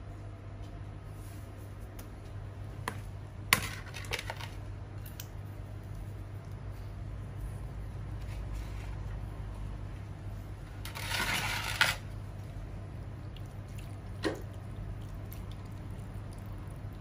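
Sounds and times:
steady low hum: 0.0s - 17.0s
plastic containers scraping on tiles: 10.8s - 12.0s.

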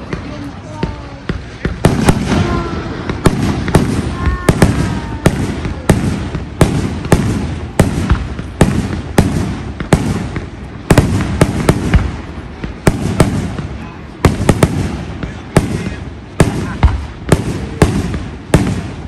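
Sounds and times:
fireworks bangs: 0.0s - 19.0s.

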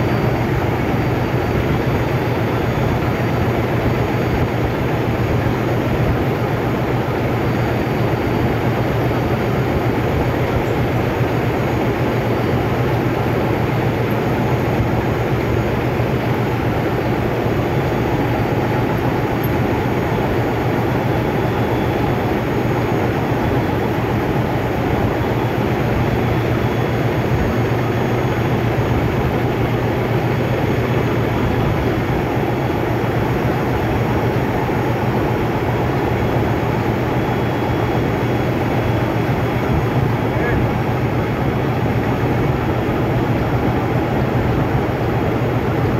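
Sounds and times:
heavy machinery droning: 0.0s - 45.9s.

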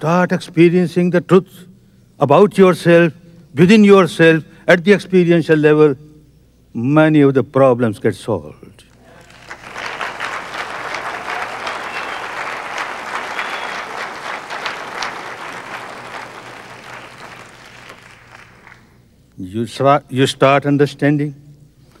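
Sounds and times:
audience applauding: 9.1s - 18.9s.

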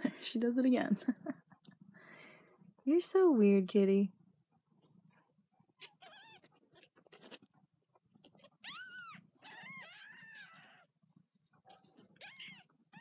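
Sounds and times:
kittens mewing: 5.8s - 7.4s, 8.3s - 11.0s, 11.7s - 13.0s.

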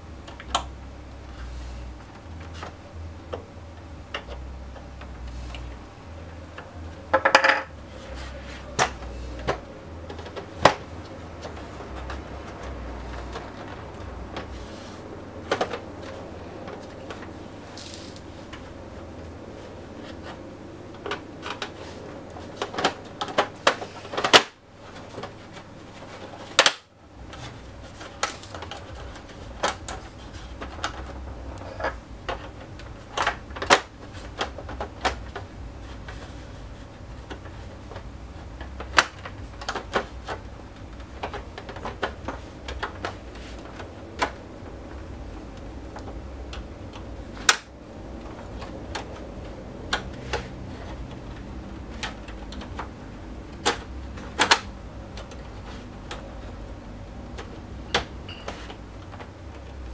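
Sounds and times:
plastic clicks and snaps: 26.6s - 26.9s.

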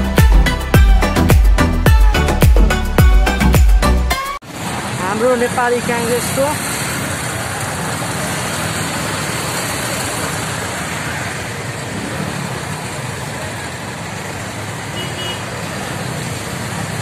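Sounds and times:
motorcycle engines in traffic: 4.4s - 17.0s.

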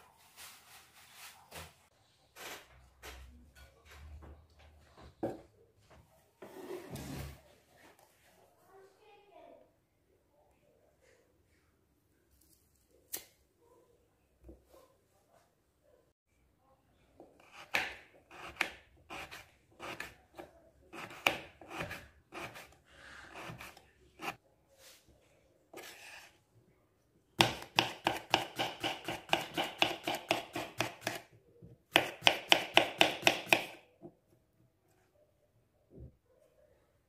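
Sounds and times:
knife cutting on wooden board: 17.4s - 20.2s, 21.0s - 24.4s.

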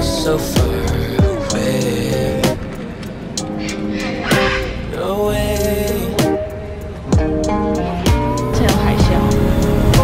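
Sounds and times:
background music with steady beat: 0.0s - 10.0s.

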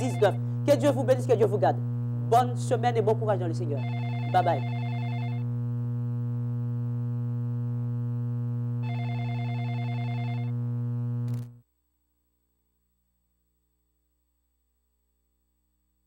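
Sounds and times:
higher telephone tone: 0.0s - 0.5s, 3.7s - 5.5s, 8.8s - 10.6s
low buzzing hum of phone line: 0.0s - 11.6s.

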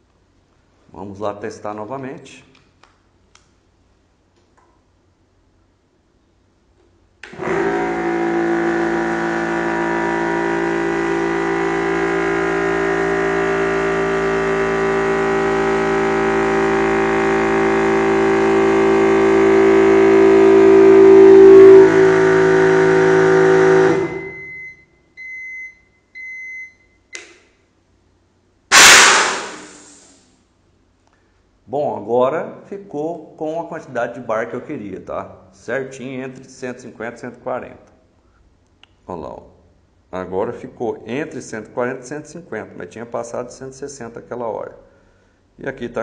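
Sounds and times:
electric air compressor running: 7.2s - 24.4s, 28.7s - 30.2s
high-pressure air hiss: 28.7s - 30.3s.

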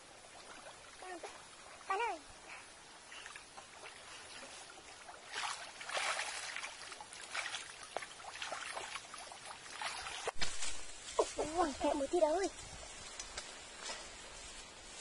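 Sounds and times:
stream water splashing: 0.0s - 11.4s.

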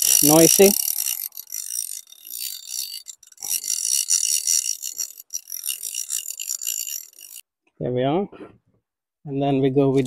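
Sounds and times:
fly reel ratchet rattling: 0.0s - 7.4s.

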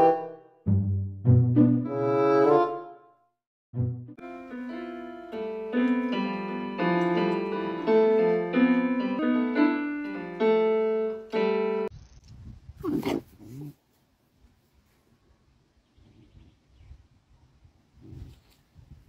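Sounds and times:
slow piano notes: 3.8s - 11.9s.

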